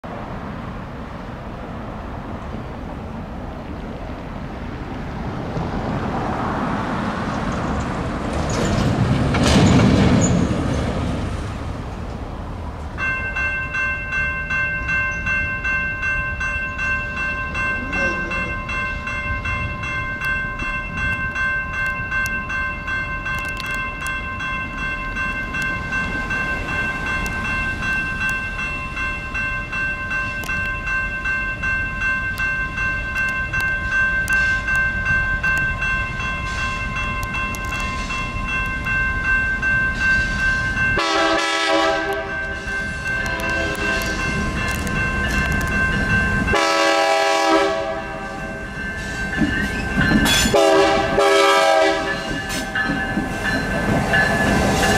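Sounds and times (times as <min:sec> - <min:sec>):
vehicle passing close by: 0:04.9 - 0:11.8
railroad crossing bell ringing: 0:12.9 - 0:54.9.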